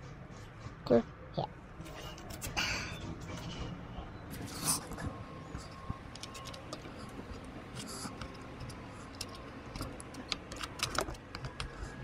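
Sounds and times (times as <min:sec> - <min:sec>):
clicks and taps of small parts: 0:06.1 - 0:11.8.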